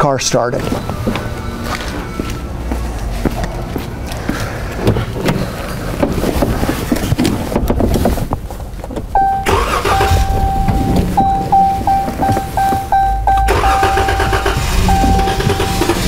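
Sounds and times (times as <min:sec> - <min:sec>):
car engine cranking and starting: 0:08.8 - 0:16.0
electronic chime: 0:09.2 - 0:16.0.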